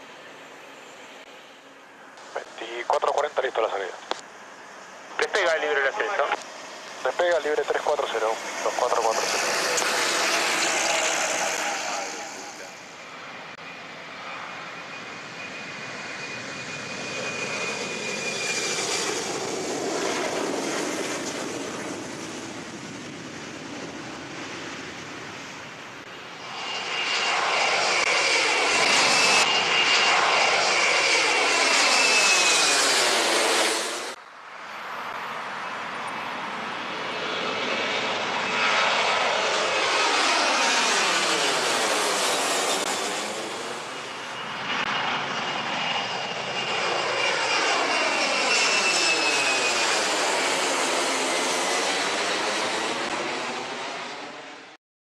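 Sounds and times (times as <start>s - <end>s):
jet airliner rumble and fan whine: 0.0s - 54.8s.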